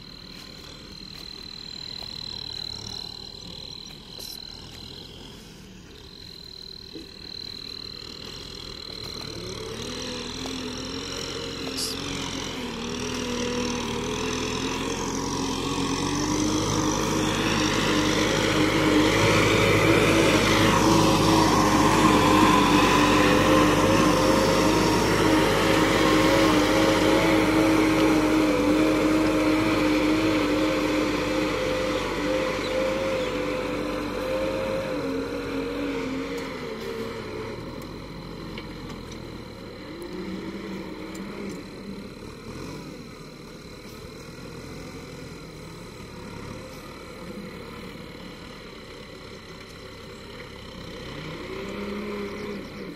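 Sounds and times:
tractor diesel engine under load: 0:00.0 - 0:52.9.

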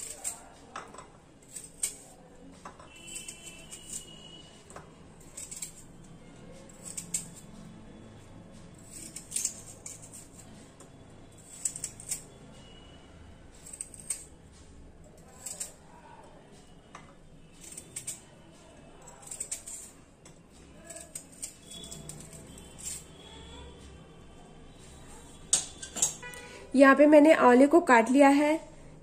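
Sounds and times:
knife cutting crisp fruit: 0:00.0 - 0:00.6, 0:01.4 - 0:02.3, 0:02.9 - 0:04.4, 0:05.2 - 0:07.6, 0:11.4 - 0:12.3, 0:15.2 - 0:15.8, 0:17.5 - 0:18.3, 0:18.9 - 0:20.0, 0:20.8 - 0:23.3.

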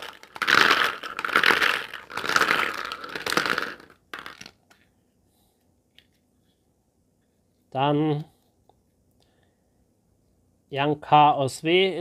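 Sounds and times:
plastic capsules rattling in a bowl: 0:00.0 - 0:04.7.

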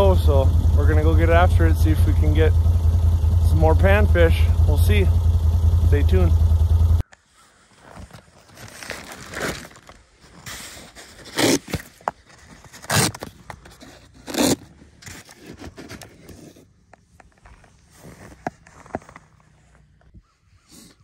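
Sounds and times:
scraping and crunching on snow: 0:07.3 - 0:21.0.

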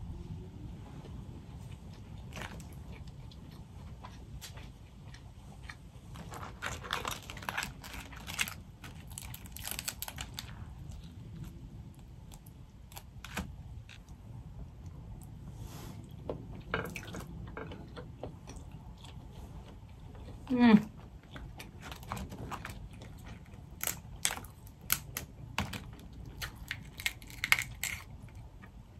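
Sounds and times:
chewing close to microphone: 0:01.5 - 0:14.2, 0:16.9 - 0:28.8
crawfish shells crunching: 0:02.2 - 0:14.2, 0:21.1 - 0:28.8.

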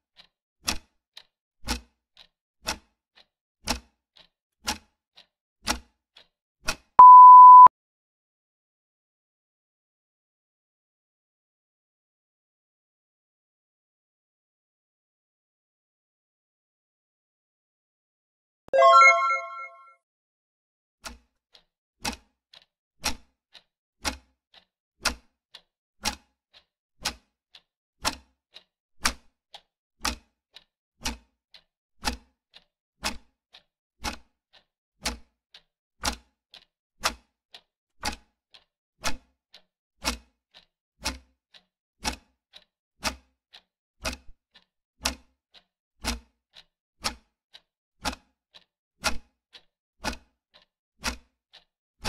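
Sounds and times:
clock ticking: 0:18.8 - 0:19.8, 0:49.5 - 0:51.7.

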